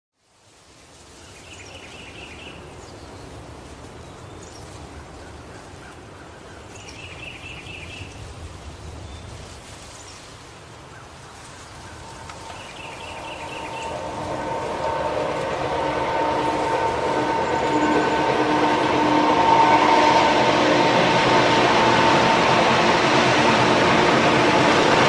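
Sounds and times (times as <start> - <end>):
low rumble with hiss: 6.7 - 16.4
warbling chirp: 11.9 - 14.8.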